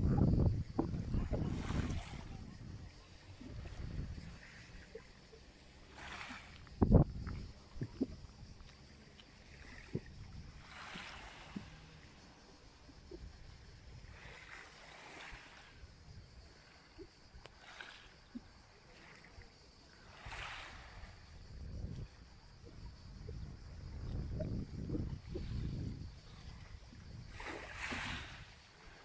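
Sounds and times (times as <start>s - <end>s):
wind rumble on microphone: 0.0s - 5.2s, 5.9s - 14.6s, 15.2s - 17.1s, 19.7s - 29.0s
waves lapping on pebble shore: 1.2s - 2.6s, 5.5s - 7.8s, 9.3s - 12.5s, 14.0s - 15.8s, 17.5s - 18.3s, 20.0s - 21.3s, 27.2s - 29.0s.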